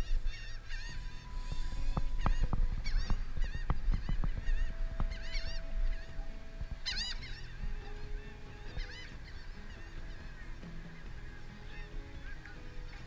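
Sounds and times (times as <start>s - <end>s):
gulls calling: 0.0s - 13.0s.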